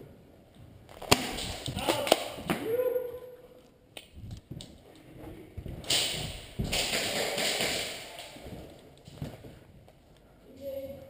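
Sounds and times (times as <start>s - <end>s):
footsteps: 3.6s - 11.0s
clothing and gear shuffling: 8.2s - 10.5s.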